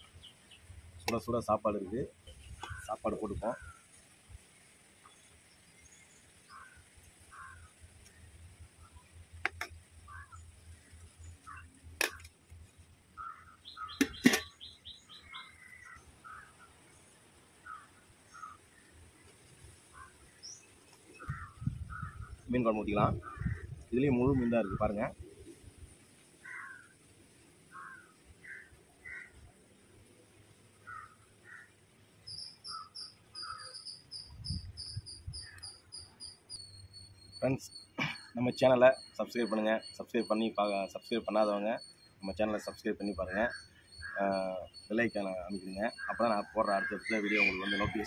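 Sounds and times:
small birds chirping: 0:00.0 - 0:48.0
metal pot lid clanking: 0:14.0 - 0:14.5.

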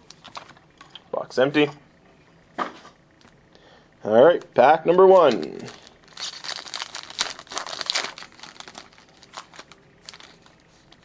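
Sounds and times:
foil wrapper crinkling and tearing: 0:05.3 - 0:11.0.

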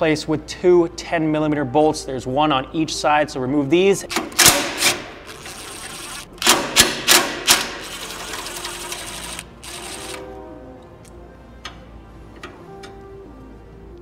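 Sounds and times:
impact driver hammering rattle: 0:06.4 - 0:07.8.

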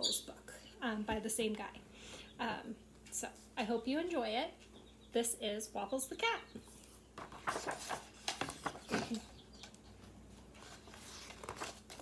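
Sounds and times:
book pages rustling: 0:06.8 - 0:12.0.

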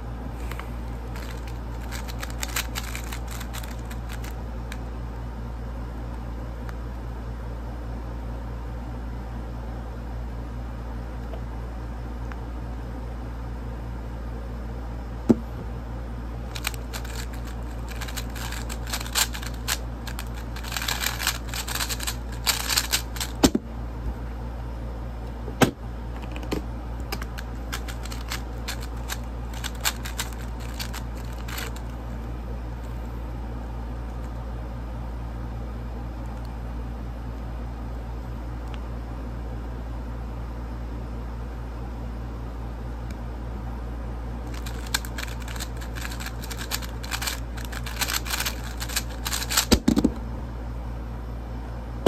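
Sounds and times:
puzzle cube clicking: 0:01.1 - 0:04.4, 0:16.5 - 0:23.5, 0:27.2 - 0:31.8, 0:44.5 - 0:49.9
low hum: 0:14.5 - 0:34.8.

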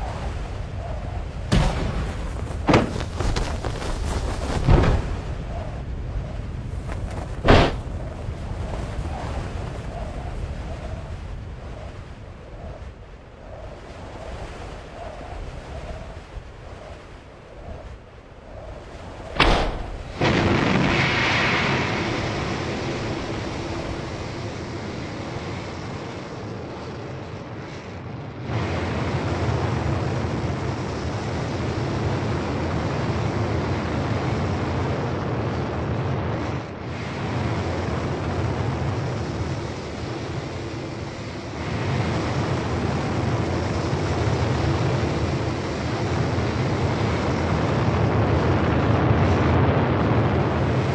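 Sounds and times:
sharp bang: 0:07.4 - 0:07.9.

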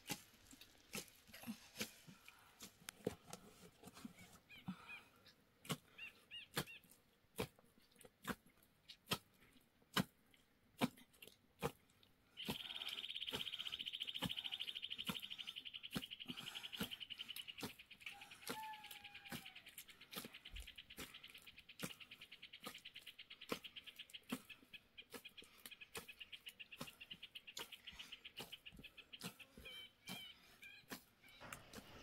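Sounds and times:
faint bird chirps: 0:12.4 - 0:32.0.

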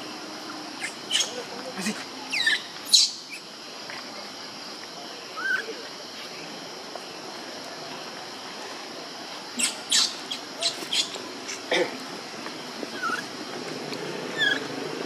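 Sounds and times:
insect hiss: 0:00.0 - 0:15.0
baby monkey crying: 0:14.4 - 0:14.7.

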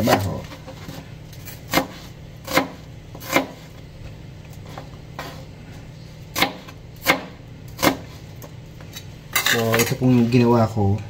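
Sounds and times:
knife chopping on cutting board: 0:00.0 - 0:03.8, 0:06.3 - 0:08.2.

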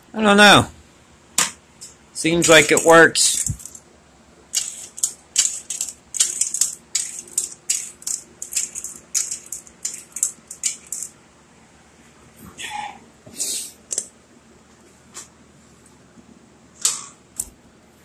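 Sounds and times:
metallic scrapes and clicks: 0:04.6 - 0:11.1.

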